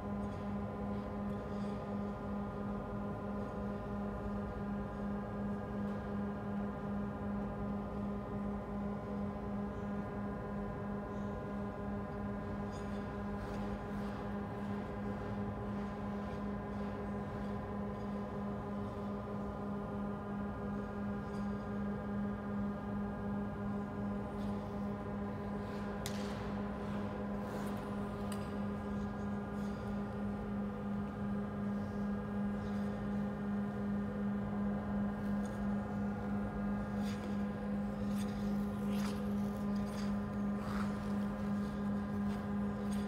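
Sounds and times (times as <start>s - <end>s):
ice arena machinery hum: 0.0s - 43.0s
skate blades scraping ice: 37.0s - 43.0s.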